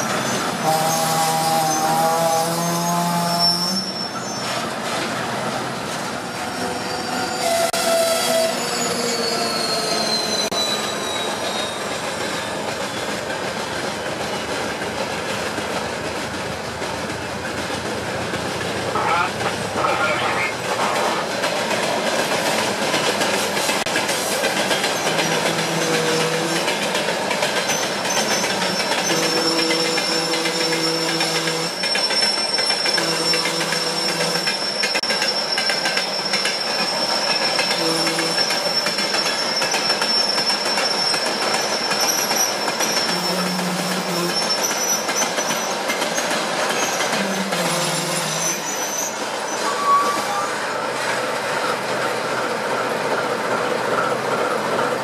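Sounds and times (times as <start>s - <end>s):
high wheel squeal: 0.0s - 4.7s, 6.2s - 13.1s, 27.6s - 51.1s
train wheels rumbling on rails: 0.0s - 55.0s.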